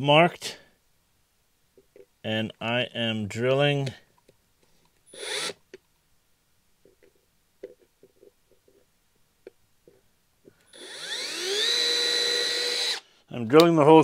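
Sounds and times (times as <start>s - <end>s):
cordless drill whining: 5.1s - 5.6s, 10.7s - 13.1s.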